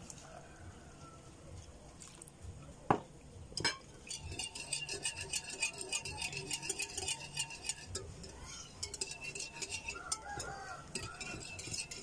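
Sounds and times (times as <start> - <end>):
whisk clinking on glass: 3.6 - 12.0
whisk beating in glass bowl: 4.0 - 12.0.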